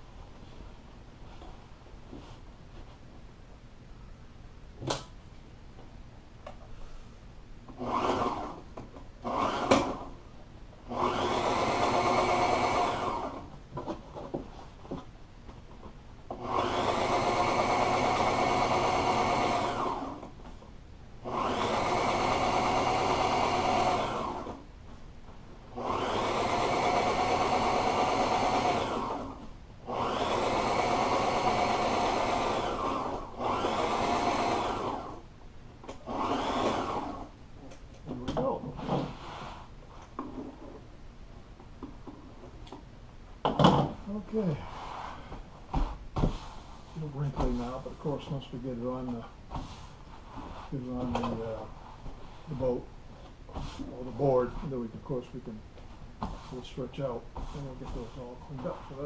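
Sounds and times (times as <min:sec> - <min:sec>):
sewing machine stitching: 0:07.8 - 0:08.6, 0:36.1 - 0:37.3.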